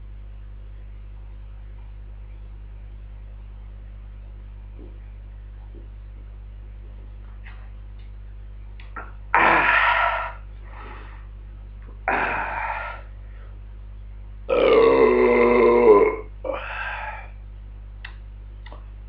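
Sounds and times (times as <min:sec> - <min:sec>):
man belching loudly: 0:09.4 - 0:09.9, 0:14.5 - 0:16.7.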